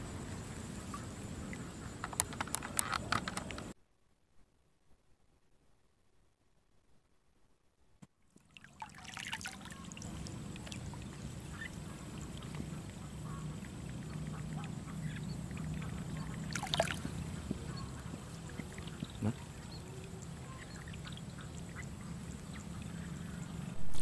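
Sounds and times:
steady low hum: 9.7 - 24.0
ducks quacking: 10.7 - 23.7.

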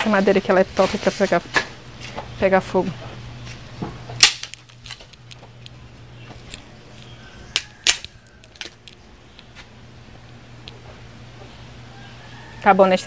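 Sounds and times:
wood fire crackling: 3.2 - 11.4
sharp pops of fire: 4.2 - 4.8.

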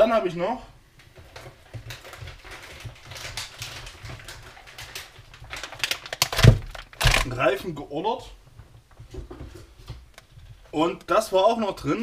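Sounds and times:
plastic packaging crinkling: 1.2 - 7.8.

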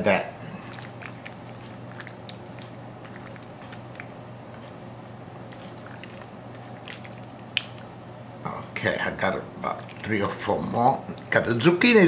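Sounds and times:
wooden spoon squishing pasta: 0.4 - 8.1.

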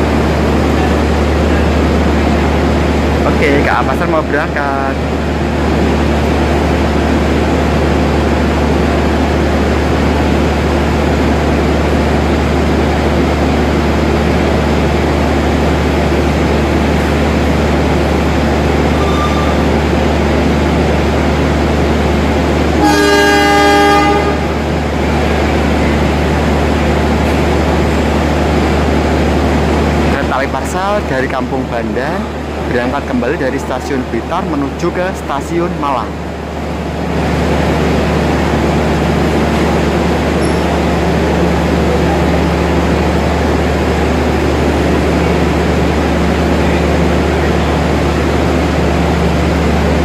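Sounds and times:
locomotive low hum: 0.0 - 50.0
locomotive horn: 19.0 - 19.7, 22.8 - 24.6.

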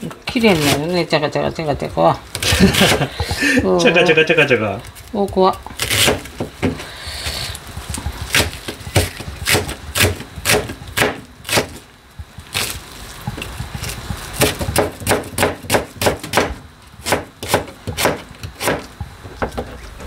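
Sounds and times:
knife slicing onion on board: 5.3 - 11.8, 12.4 - 19.6.

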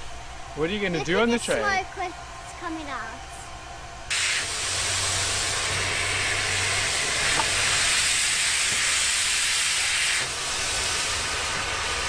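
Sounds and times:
steam locomotive hissing: 4.1 - 12.0.

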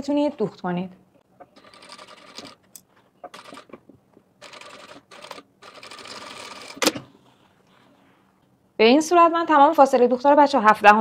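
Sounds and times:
sewing machine stitching: 3.3 - 3.8, 4.4 - 7.0.

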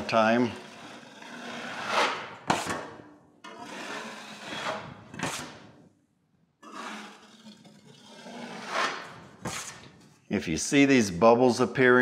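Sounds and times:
taping knife scraping drywall: 0.0 - 5.8, 6.6 - 10.2.

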